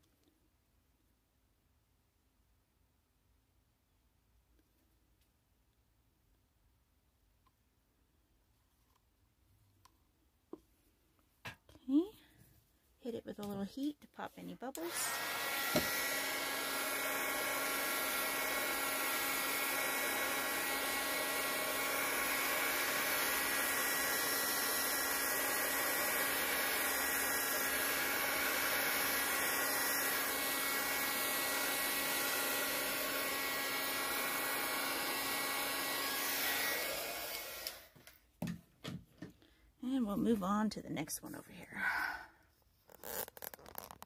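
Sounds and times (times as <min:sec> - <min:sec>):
heat gun blower whir: 0:14.8 - 0:38.1.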